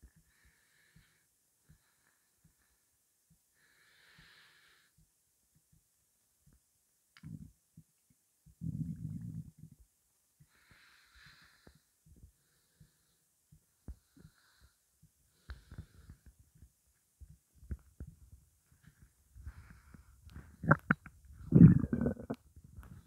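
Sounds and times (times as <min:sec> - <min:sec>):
stomach gurgling and popping: 0:07.2 - 0:07.6, 0:08.4 - 0:09.8, 0:15.5 - 0:23.0.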